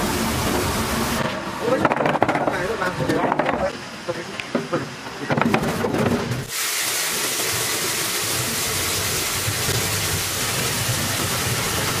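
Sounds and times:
water spraying from nozzles: 0.0 - 1.9, 6.4 - 12.0.

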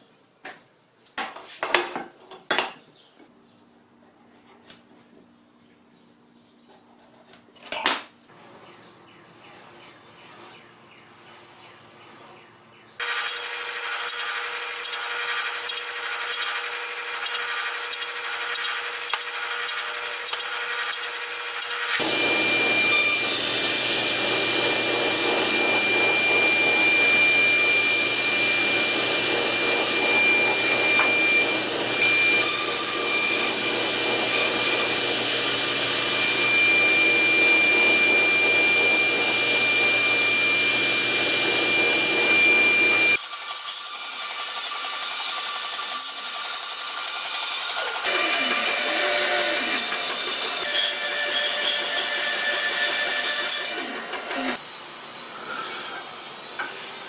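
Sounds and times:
table saw blade whine: 13.0 - 57.0
wood cutting noise: 13.0 - 57.0.

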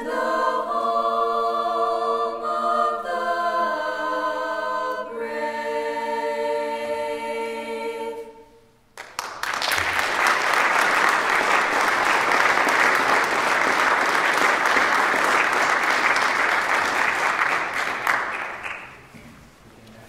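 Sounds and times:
audience applauding: 9.0 - 19.1.

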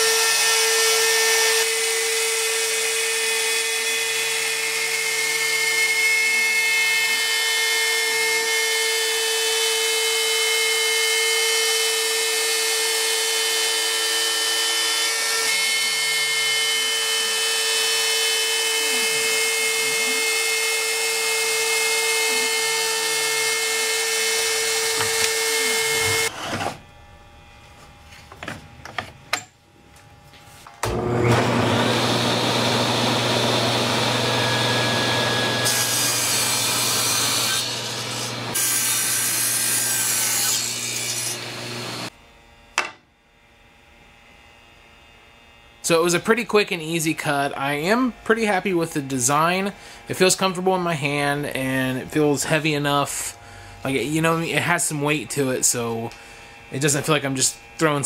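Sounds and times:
table saw motor humming: 0.0 - 27.5, 30.7 - 43.0
router spindle whining: 11.4 - 26.6, 30.8 - 38.6.

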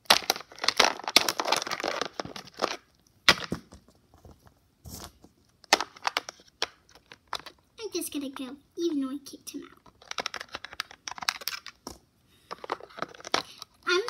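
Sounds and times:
plastic rustling: 0.0 - 7.6, 9.8 - 14.0
plastic toy figures tapping and clicking: 5.7 - 8.4, 9.7 - 14.0.

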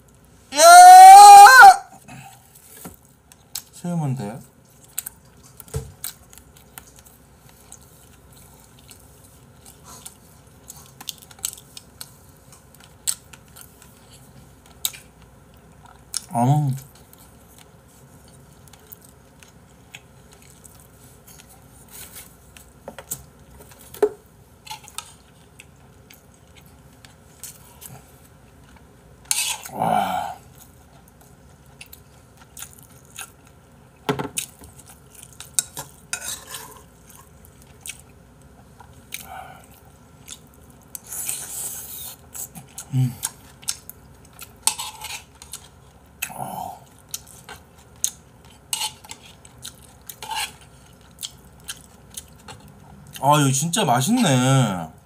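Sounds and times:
chewing: 4.7 - 23.9, 30.4 - 33.6, 34.4 - 53.2.

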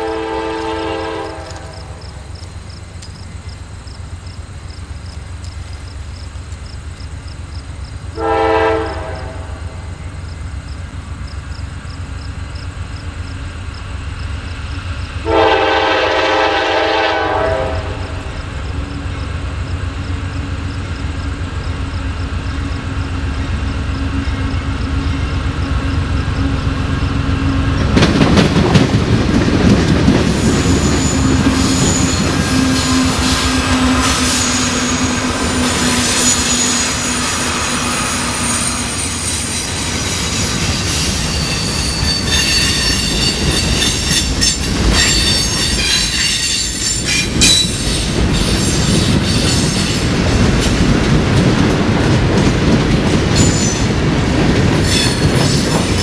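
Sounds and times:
wheels clicking over rail joints: 0.0 - 8.2, 18.2 - 37.6, 38.2 - 56.0
diesel locomotive engine: 0.0 - 56.0
freight cars rumbling and rattling: 9.6 - 15.3, 17.7 - 56.0
train wheel squeal: 30.1 - 50.2, 53.3 - 54.0, 54.8 - 56.0.

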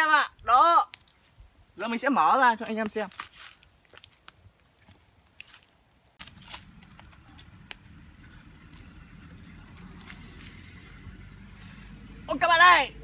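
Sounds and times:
low rumbling noise: 6.2 - 13.0.

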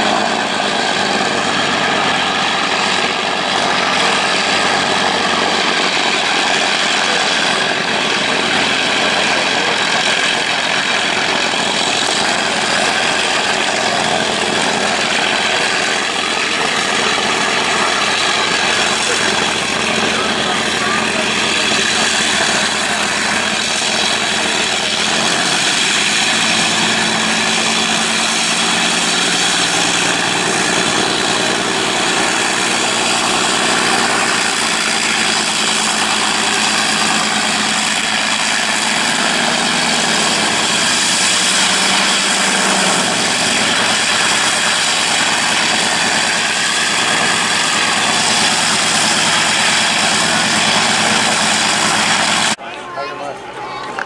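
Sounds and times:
piston aircraft engine running: 0.0 - 54.0.

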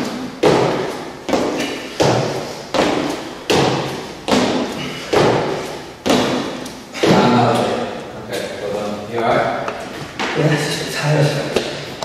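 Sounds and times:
jump landings thudding on floor: 0.4 - 7.7.

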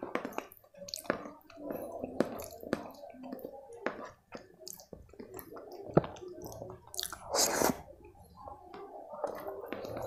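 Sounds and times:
chewing and lip smacks: 1.8 - 7.8
loud slurp: 7.0 - 7.8.

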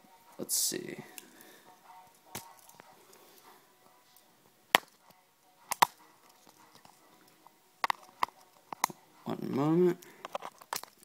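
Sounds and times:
clicks and knocks of hard objects: 5.7 - 7.0, 7.8 - 9.0, 10.2 - 11.0.

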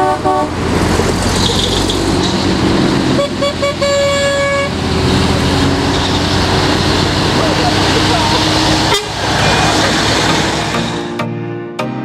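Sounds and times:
heavy vehicles passing: 0.0 - 11.2
vehicle horn toots: 3.2 - 4.7, 8.9 - 9.2.

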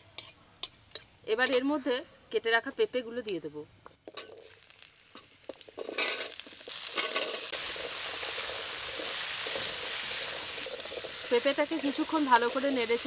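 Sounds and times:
loud sizzle of frying: 4.0 - 13.0
spatula stirring in pan: 5.4 - 13.0.

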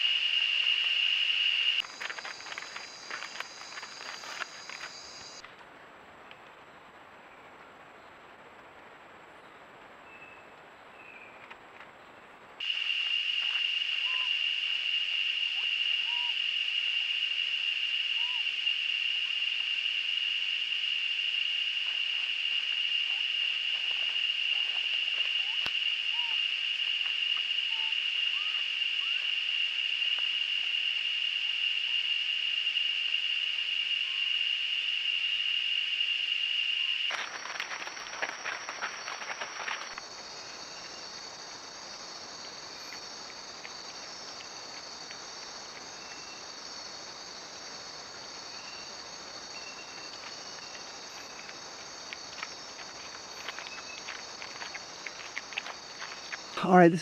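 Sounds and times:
high-pitched insect drone: 0.0 - 5.4, 12.6 - 43.1
night insects chirring: 0.0 - 5.4, 12.6 - 57.0.

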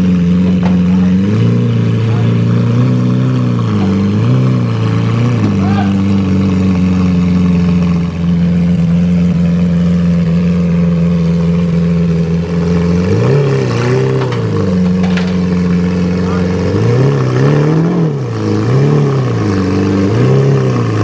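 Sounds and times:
engine idling and revving: 0.0 - 21.0.

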